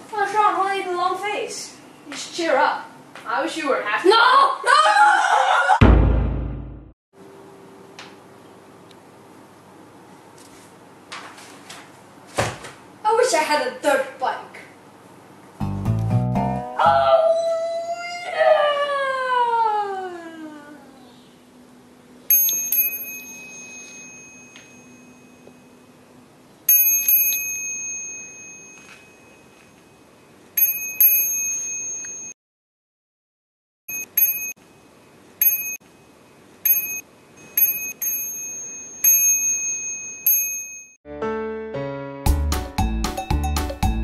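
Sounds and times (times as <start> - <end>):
bicycle bell ringing: 22.3 - 25.8, 26.7 - 30.0, 30.6 - 32.4, 33.9 - 34.6, 35.4 - 35.8, 36.6 - 41.0.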